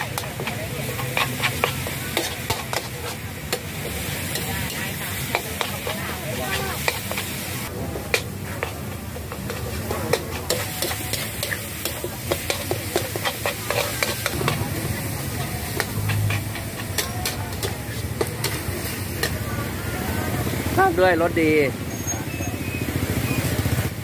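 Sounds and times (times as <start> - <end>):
food sizzling: 0.0 - 24.0
metal ladle clanking on wok: 9.3 - 19.4.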